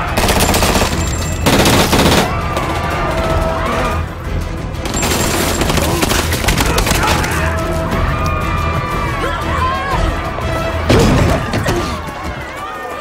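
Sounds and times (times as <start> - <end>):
film music score: 0.0 - 13.0
automatic gunfire: 0.1 - 2.4.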